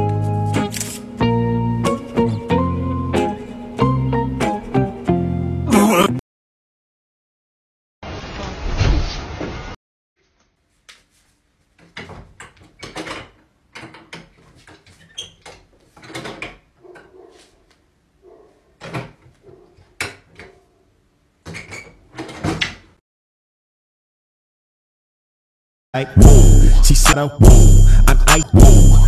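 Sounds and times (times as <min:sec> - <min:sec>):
door knocks clicks and rattles: 0:11.8 - 0:14.4.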